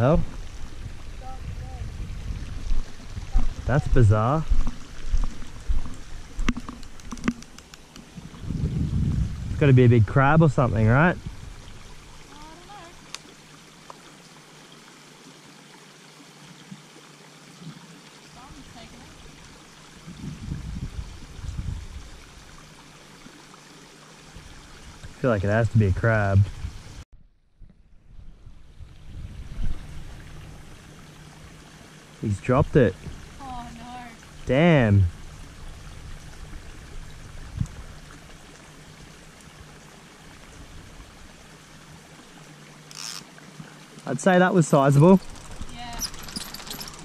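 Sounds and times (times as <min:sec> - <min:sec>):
low rumbling bumps: 0:00.0 - 0:11.7
water washing along shore: 0:10.4 - 0:14.5, 0:17.6 - 0:20.2, 0:28.8 - 0:47.0
water hissing: 0:42.8 - 0:43.4.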